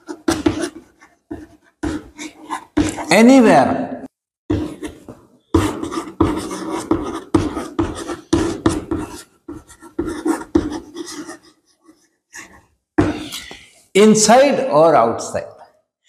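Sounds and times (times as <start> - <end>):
chalk tapping and scratching: 0.0 - 3.1, 4.5 - 13.6.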